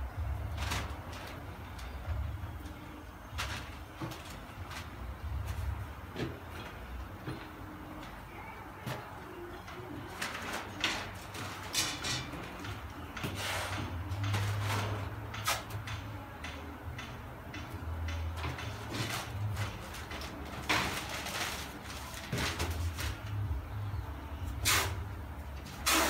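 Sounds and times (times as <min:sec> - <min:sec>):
ventilation hum: 0:00.0 - 0:26.0
newspaper rustling and scraping: 0:18.9 - 0:23.4.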